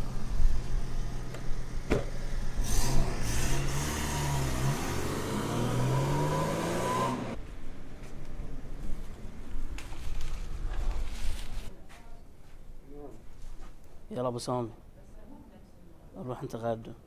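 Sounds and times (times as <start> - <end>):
car engine accelerating: 0.0 - 7.4.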